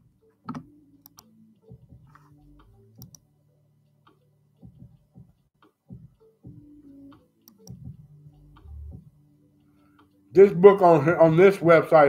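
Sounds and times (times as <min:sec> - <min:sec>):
computer mouse clicks: 0:00.5 - 0:01.3, 0:02.1 - 0:03.2, 0:07.4 - 0:07.8.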